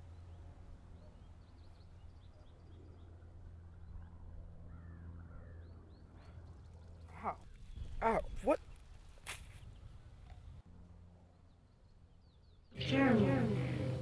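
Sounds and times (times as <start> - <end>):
low steady hum: 9.6 - 14.0.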